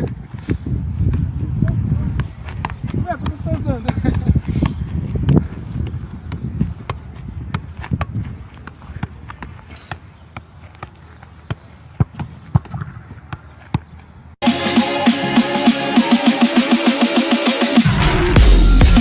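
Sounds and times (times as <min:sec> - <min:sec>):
wind rumble on microphone: 0:00.0 - 0:09.2
foot kicking ball: 0:00.0 - 0:14.0
electronic music: 0:14.4 - 0:19.0.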